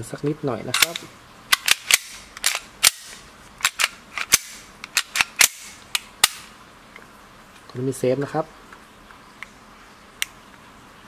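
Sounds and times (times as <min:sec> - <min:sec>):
airsoft pistol action clicks: 0:00.7 - 0:06.5.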